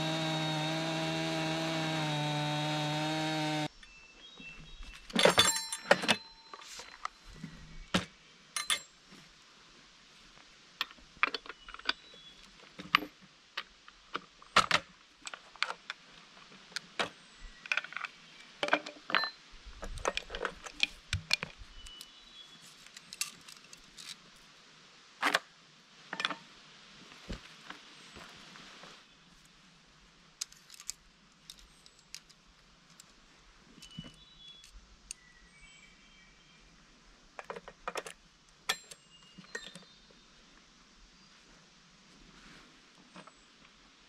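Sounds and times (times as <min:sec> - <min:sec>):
metallic clinks and knocks: 0:05.1 - 0:07.1, 0:08.6 - 0:08.9.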